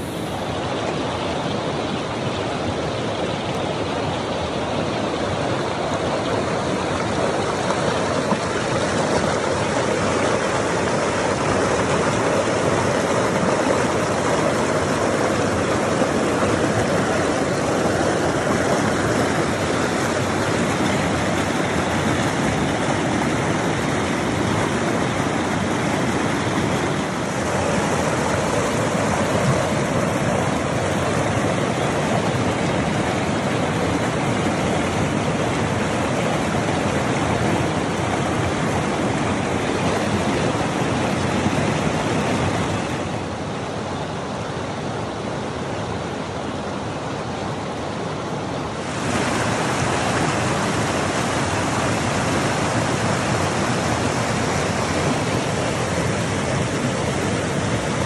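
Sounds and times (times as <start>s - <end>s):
stream rushing over rocks: 0.0s - 58.0s.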